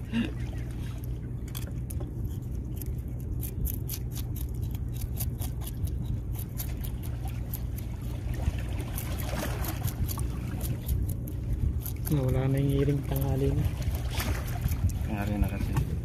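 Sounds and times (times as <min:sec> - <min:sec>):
water splashing and trickling: 0:00.0 - 0:02.1, 0:06.4 - 0:16.0.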